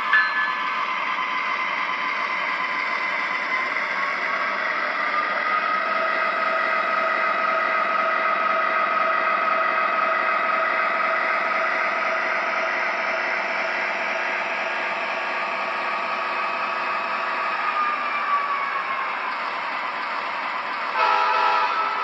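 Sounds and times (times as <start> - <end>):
train horn blast: 21.0 - 22.0.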